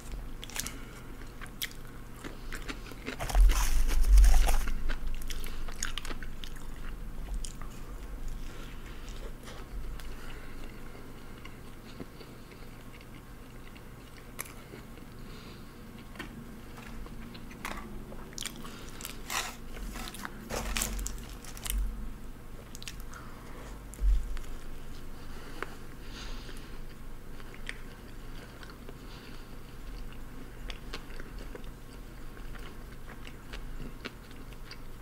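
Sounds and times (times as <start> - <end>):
biting and chewing: 0.1 - 15.2, 15.9 - 21.9
paper wrapper crackling: 19.2 - 21.8.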